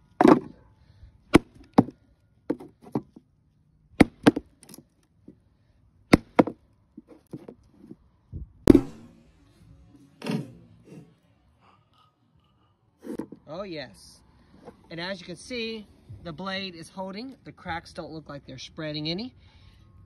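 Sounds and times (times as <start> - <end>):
axe chopping kindling: 0.0 - 0.6, 1.3 - 3.1, 4.0 - 4.8, 6.1 - 6.6, 8.7 - 9.1.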